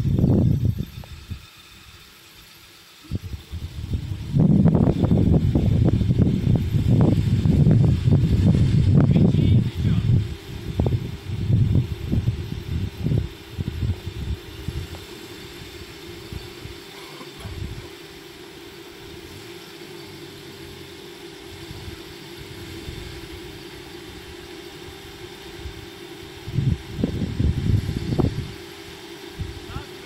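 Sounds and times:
loud low rumbling bursts: 3.1s - 16.8s, 21.5s - 28.6s.

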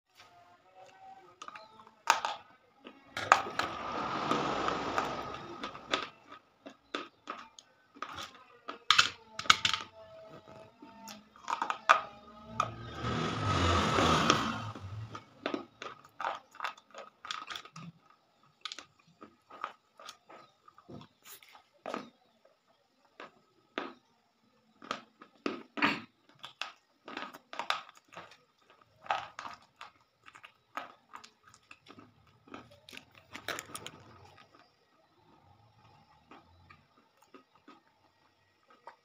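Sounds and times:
chalk being bitten and chewed: 29.4s - 34.7s.

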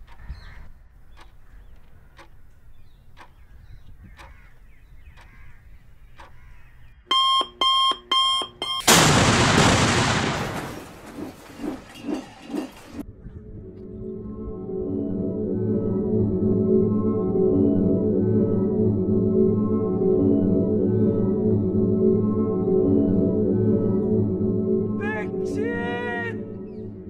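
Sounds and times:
timer ticking: 7.1s - 8.8s
beeps: 7.1s - 8.9s
explosion blast: 8.9s - 11.4s.

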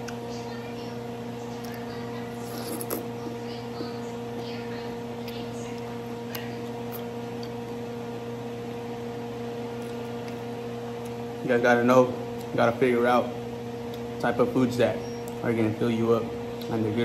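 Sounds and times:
electrical hum: 0.0s - 17.0s
faint chewing: 9.7s - 11.2s.

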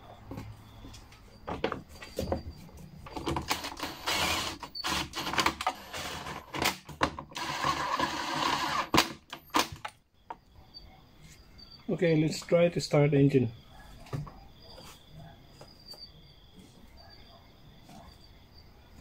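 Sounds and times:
cordless driver running: 3.5s - 6.5s, 7.4s - 9.1s.

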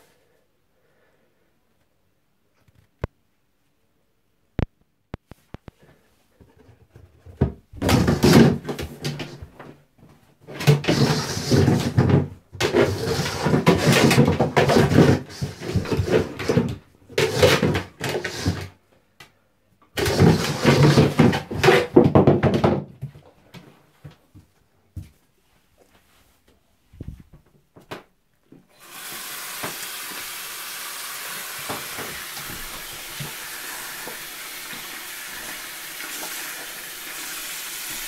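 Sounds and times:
plastic stool scraping on floor: 7.0s - 9.8s, 10.5s - 18.8s, 20.0s - 22.9s, 31.4s - 36.4s.

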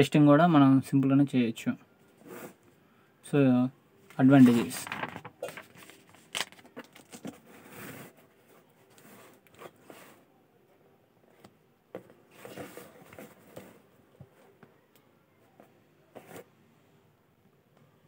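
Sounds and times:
book pages rustling: 4.1s - 10.2s, 11.4s - 14.7s, 16.1s - 16.5s.

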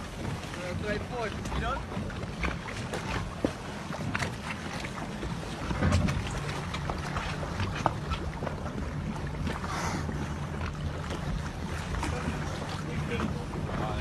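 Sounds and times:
water splashing against boat: 0.0s - 14.0s
wind buffeting microphone: 0.0s - 14.0s.

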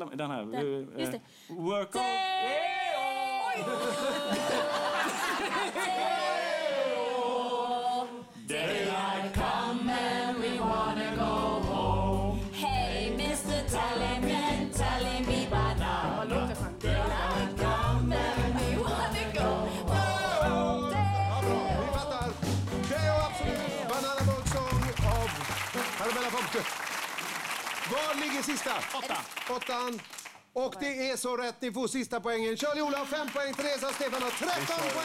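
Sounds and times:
people singing: 2.0s - 24.1s.

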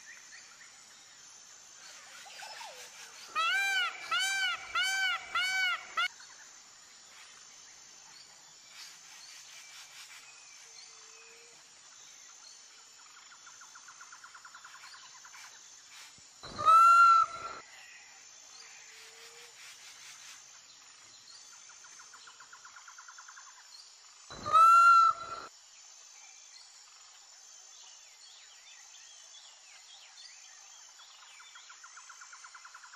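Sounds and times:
peafowl call: 2.2s - 6.1s, 16.5s - 17.6s, 24.4s - 25.5s.

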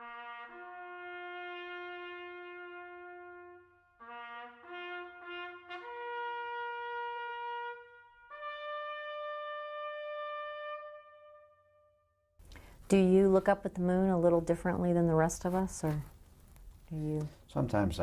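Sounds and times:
solo trumpet melody: 0.0s - 12.2s.

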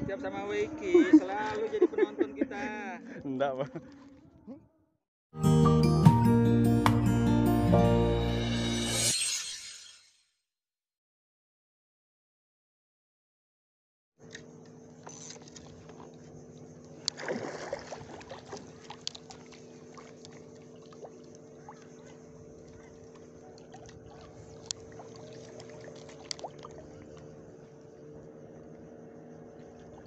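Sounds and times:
boat engine humming: 14.2s - 30.0s.

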